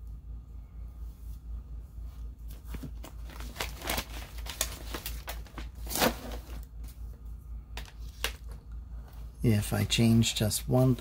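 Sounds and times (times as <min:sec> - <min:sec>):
low steady hum: 0:00.0 - 0:11.0
paper rustling: 0:02.4 - 0:07.0.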